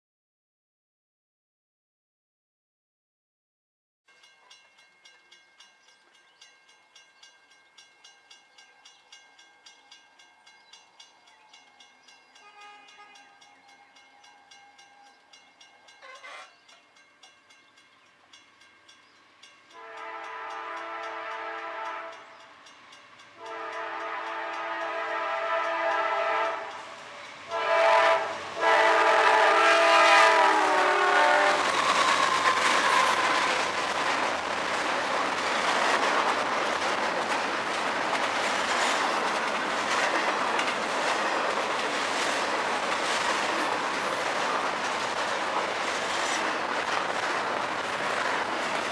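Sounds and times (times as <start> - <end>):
train rumble: 4.3 - 48.9
distant train horn: 11.1 - 17.0, 19.7 - 33.7.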